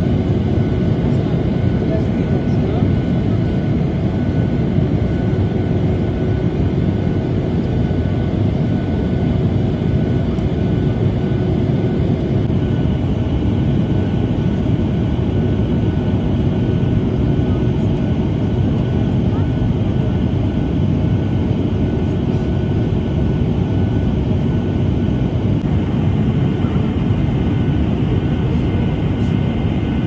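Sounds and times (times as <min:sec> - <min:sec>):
jet engine rumble: 0:00.0 - 0:30.0.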